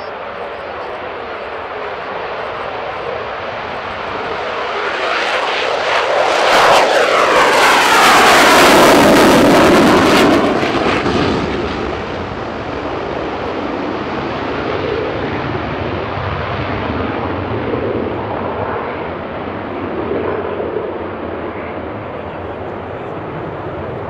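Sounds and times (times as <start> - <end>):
jet engine roar: 0.0 - 24.0.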